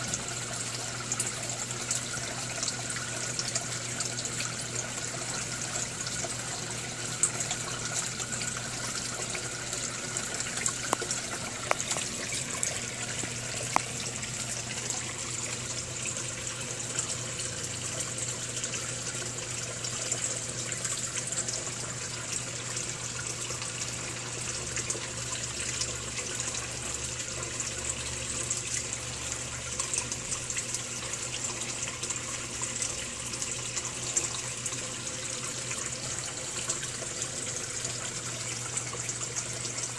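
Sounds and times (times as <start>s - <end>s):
fountain splashing into pond: 0.0s - 22.3s.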